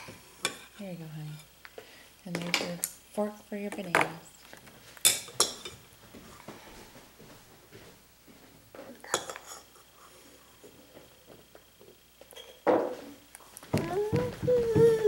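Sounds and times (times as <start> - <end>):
toddler humming: 13.7 - 15.0.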